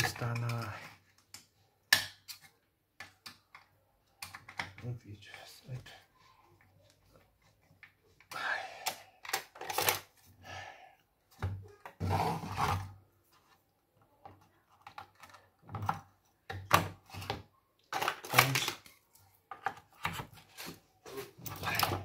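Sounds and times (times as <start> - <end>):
clicks and knocks of computer parts: 0.0 - 4.8.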